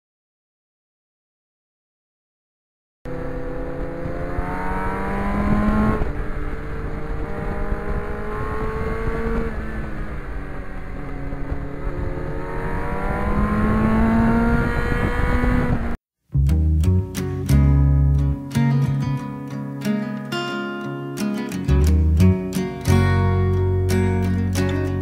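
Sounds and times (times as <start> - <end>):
motorcycle engine revving: 3.1 - 16.0.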